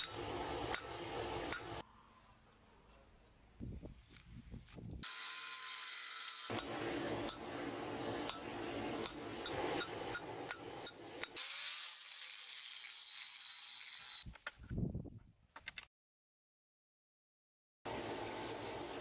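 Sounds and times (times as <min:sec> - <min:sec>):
hammer striking metal: 0:00.0 - 0:01.8, 0:06.5 - 0:11.4
angle grinder cutting steel: 0:05.0 - 0:14.2.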